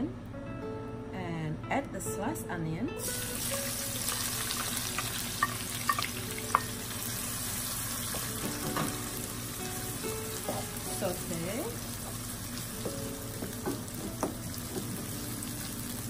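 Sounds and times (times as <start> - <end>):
onions sizzling in oil: 3.0 - 16.0
spatula knocking on pan: 12.8 - 15.2.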